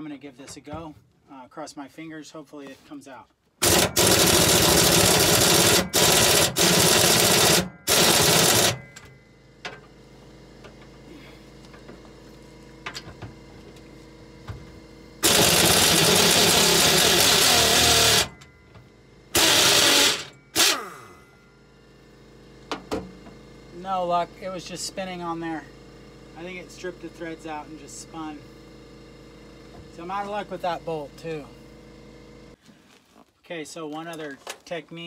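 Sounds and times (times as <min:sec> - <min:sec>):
pneumatic impact wrench hammering: 0:03.6 - 0:10.0, 0:15.2 - 0:21.3.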